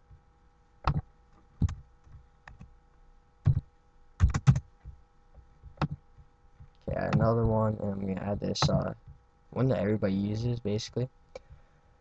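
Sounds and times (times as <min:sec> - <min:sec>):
faint electrical hum: 0:00.0 - 0:12.0
keyboard and mouse clicks: 0:00.8 - 0:01.0, 0:01.6 - 0:02.7, 0:04.2 - 0:04.7, 0:05.7 - 0:07.5, 0:08.5 - 0:08.9.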